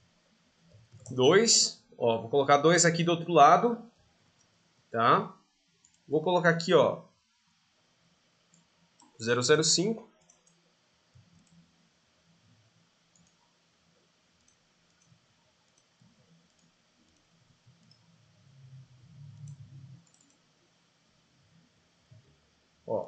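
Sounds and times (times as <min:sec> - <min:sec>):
faint computer mouse clicks: 0:05.8 - 0:06.1, 0:10.2 - 0:10.6, 0:13.1 - 0:13.5, 0:14.4 - 0:18.1, 0:19.1 - 0:20.4
faint low rumble: 0:17.4 - 0:20.2.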